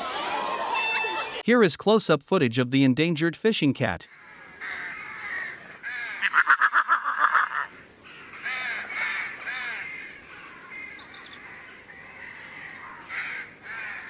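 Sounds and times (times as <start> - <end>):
harsh animal calls: 4.1 - 14.0.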